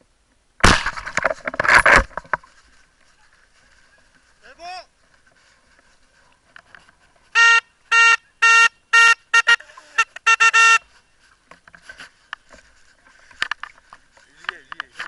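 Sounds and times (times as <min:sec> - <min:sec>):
horn-like signal blasts: 0:07.3 - 0:10.9.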